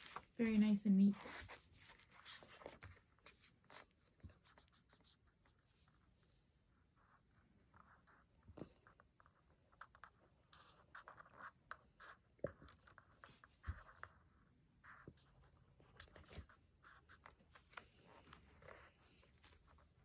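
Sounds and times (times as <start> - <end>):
marker scratching on card: 1.1 - 5.6, 9.3 - 14.2.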